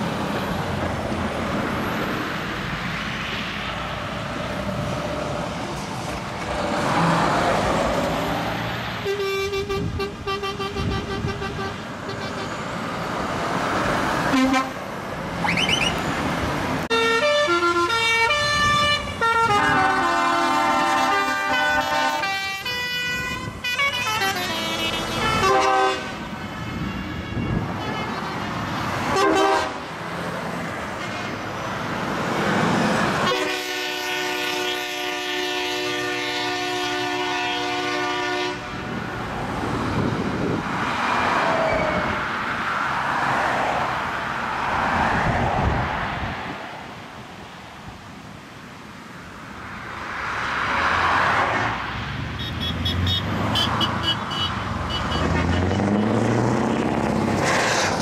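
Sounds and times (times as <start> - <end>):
truck engine and tyre noise: 0.0 - 58.0
truck air horns: 9.0 - 12.6, 14.2 - 14.9, 16.9 - 29.9, 33.2 - 39.0, 52.4 - 56.2.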